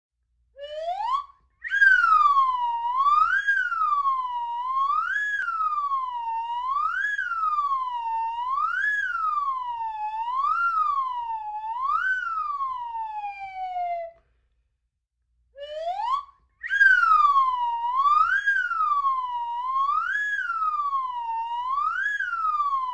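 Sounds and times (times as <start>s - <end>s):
slide whistle swooping: 0.6s - 14.2s, 15.6s - 22.9s.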